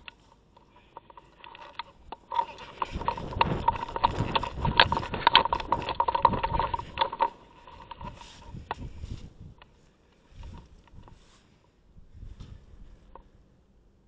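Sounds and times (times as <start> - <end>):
footsteps: 0.0 - 11.5
gear rattling and knocking: 0.9 - 9.0.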